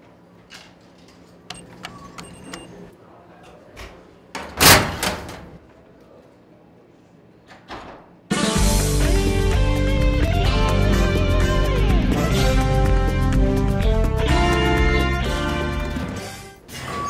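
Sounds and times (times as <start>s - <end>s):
keypad button clicks: 1.5s - 2.7s.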